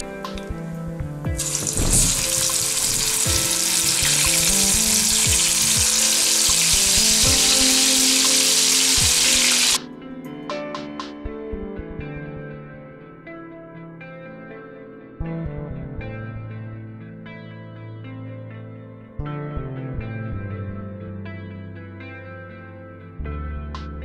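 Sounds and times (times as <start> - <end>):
soft background music: 0.0 - 24.0
chicken deep-frying in hot oil: 1.4 - 9.8.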